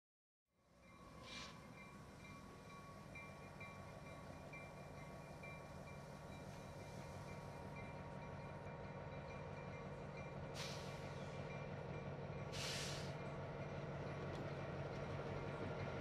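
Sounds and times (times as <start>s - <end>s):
diesel locomotive engines running: 0.7s - 16.0s
air brake hiss: 1.2s - 1.6s, 10.5s - 11.2s, 12.5s - 13.2s.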